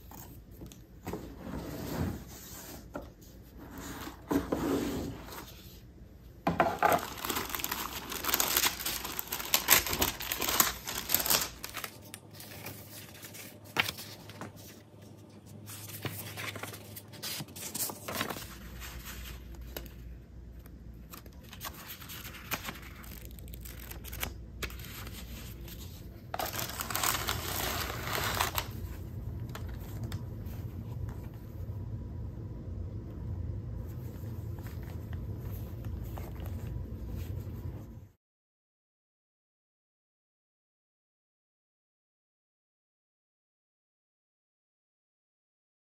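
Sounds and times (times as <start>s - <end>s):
paper and tissue rustling: 6.7s - 20.2s, 21.0s - 31.6s, 33.8s - 38.0s.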